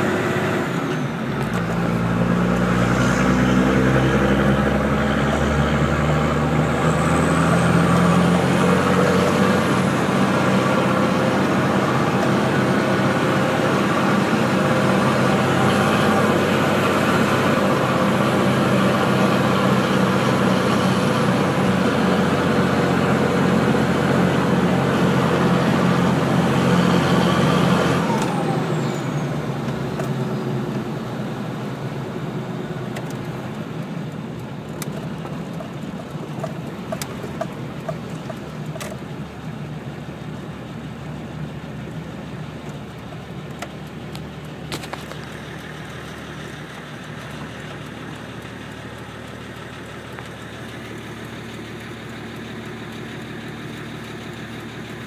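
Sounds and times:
diesel engine pulling under load: 0.0 - 55.0.

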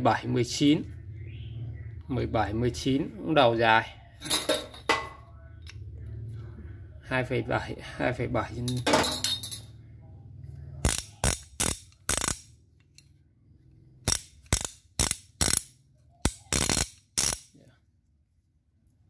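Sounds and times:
steel wrenches clinking: 8.7 - 9.7.

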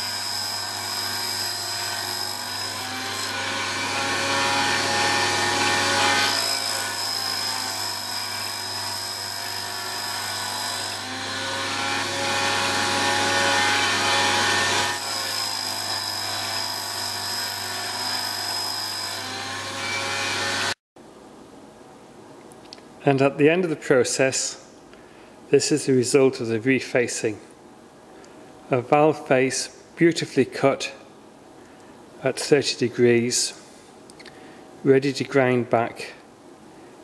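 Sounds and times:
high grinding whine: 0.0 - 20.7.

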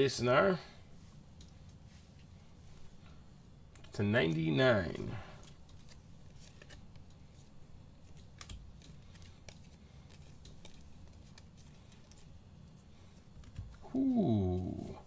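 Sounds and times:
trading cards clicking and rustling: 3.7 - 13.8.

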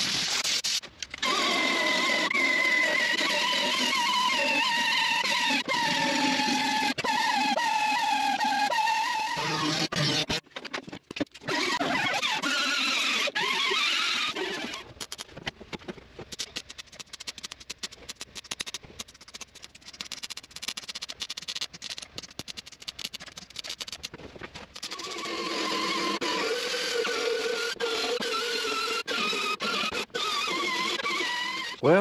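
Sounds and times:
welder crackling: 16.3 - 25.3
angle grinder whining on steel: 24.8 - 32.0.

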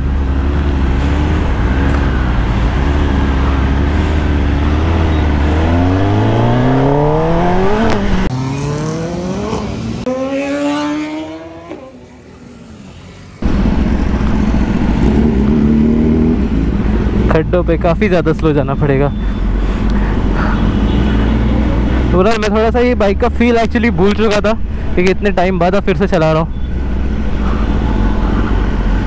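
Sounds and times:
motorcycle engine accelerating: 0.0 - 17.5.

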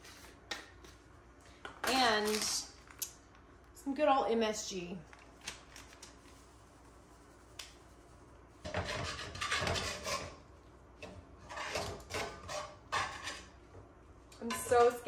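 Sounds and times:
metal tongs scraping frying pan: 8.6 - 10.4, 11.0 - 13.6.

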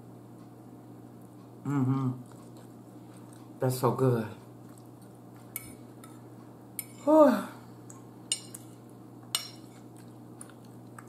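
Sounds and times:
woman humming mmm while eating: 1.6 - 2.2
fork scraping a dinner plate: 8.3 - 10.0.

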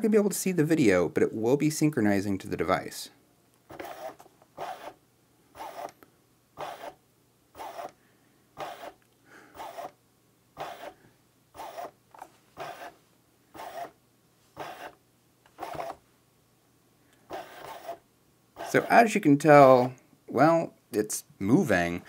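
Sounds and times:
mechanical whir of motor: 3.7 - 5.0, 5.6 - 6.0, 6.6 - 7.0, 7.6 - 8.0, 8.6 - 9.0, 9.6 - 10.0, 10.6 - 11.0, 11.6 - 13.0, 13.6 - 14.0, 14.6 - 15.0, 15.6 - 16.0, 17.3 - 18.0, 18.6 - 18.9.

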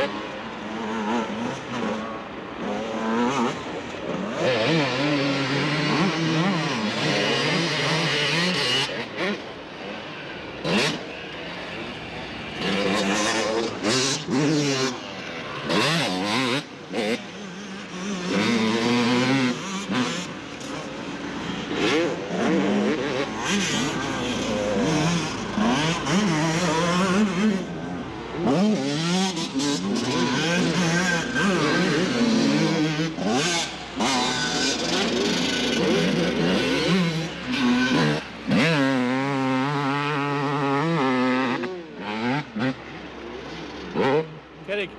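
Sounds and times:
two-stroke motorcycle engine revving: 0.0 - 44.9.

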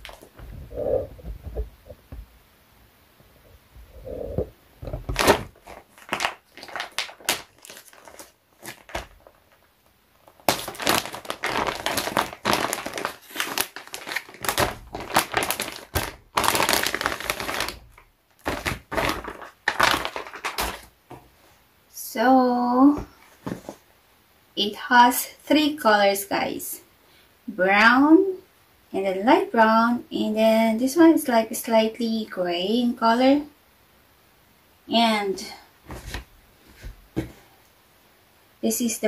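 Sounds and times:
plastic bag crinkling: 0.0 - 1.6, 4.8 - 21.2.

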